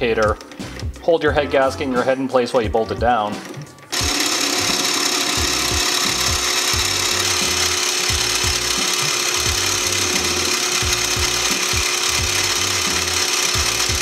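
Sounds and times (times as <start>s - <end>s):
lathe motor whine: 3.9s - 14.0s
lathe cutting hiss: 4.0s - 14.0s.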